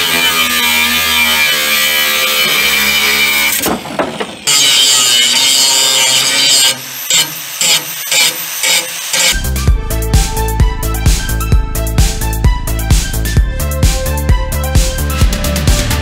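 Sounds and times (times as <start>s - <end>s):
power tool grinding steel: 0.0s - 9.4s.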